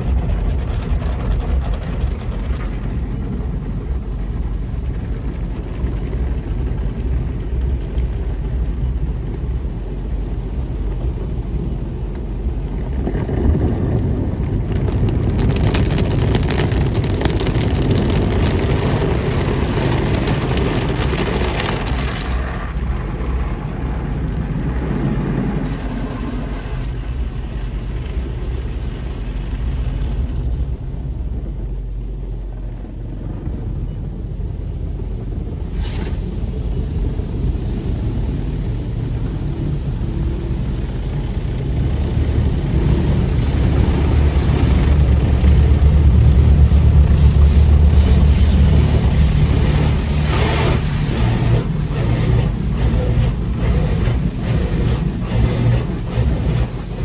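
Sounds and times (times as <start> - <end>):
car wash water jets rumbling: 0.0 - 57.0
cloth brushes slapping car: 47.1 - 57.0.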